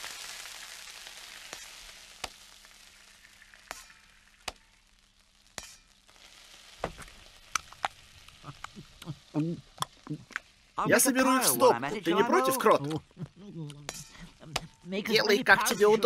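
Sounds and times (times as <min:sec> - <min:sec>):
batter sizzling in a frying pan: 0:00.0 - 0:11.4.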